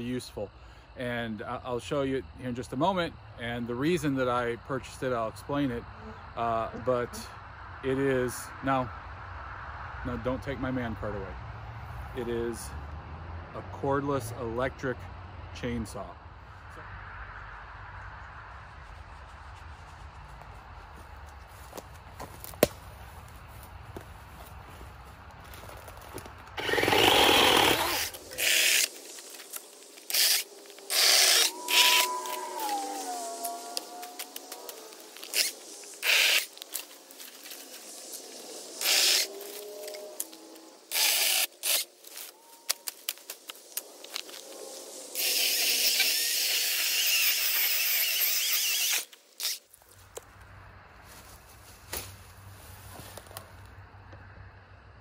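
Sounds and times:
electric chainsaw bursts: 26.6 - 36.6, 38.8 - 42.3, 45.1 - 49.6.

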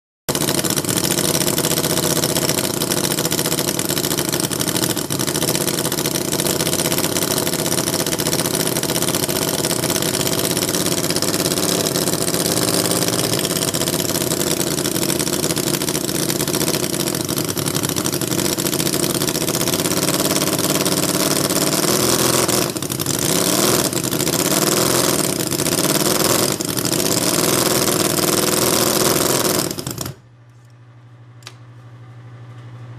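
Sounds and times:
model engine running: 0.3 - 30.2.

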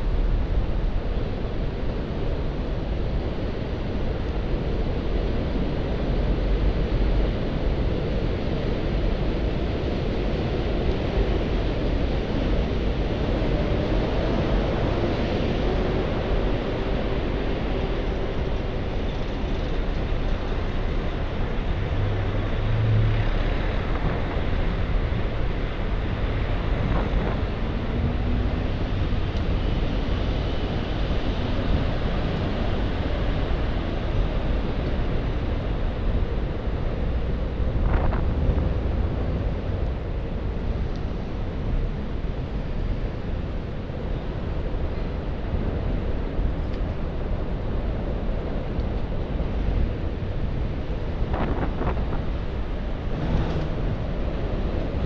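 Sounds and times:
bicycle riding noise: 0.0 - 55.0
rumble of motor traffic: 0.0 - 55.0.

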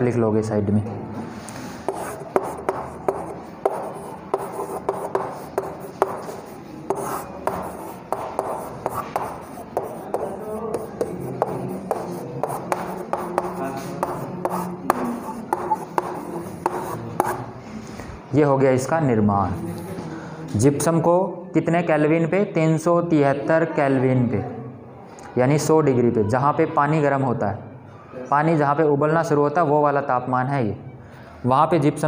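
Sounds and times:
chalk tapping and scratching: 1.7 - 17.6, 19.6 - 20.1.

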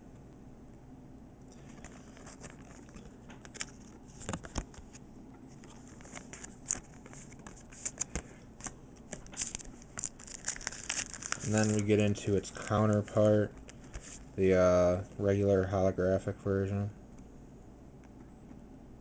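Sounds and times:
plastic pages crinkling: 1.6 - 14.3.

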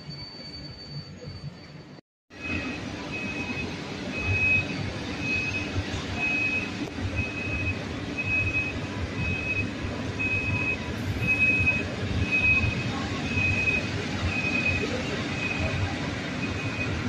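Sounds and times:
train rolling with low rumble: 0.0 - 17.0
high electronic beep: 2.4 - 15.8.

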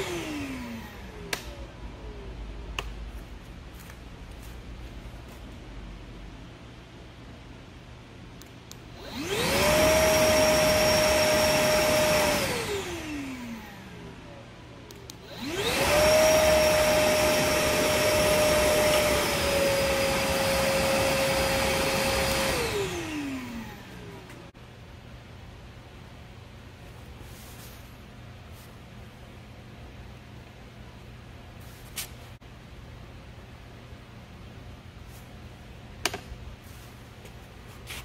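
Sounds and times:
shop vacuum motor whine: 0.0 - 2.3, 8.9 - 14.3, 14.9 - 24.5.

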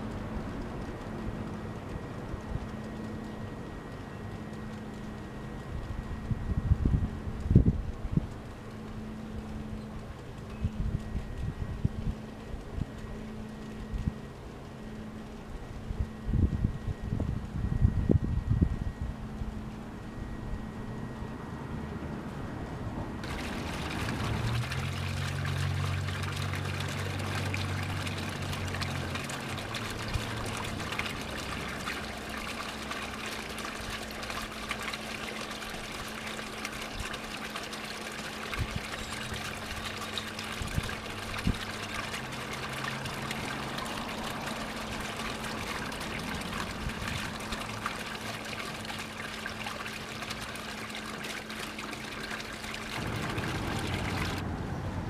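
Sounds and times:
fountain splashing and trickling: 23.2 - 55.0.

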